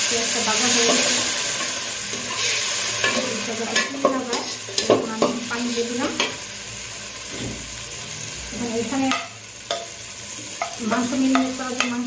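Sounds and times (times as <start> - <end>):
onions sizzling in oil: 0.0 - 12.0
spatula scraping pot: 0.9 - 5.5.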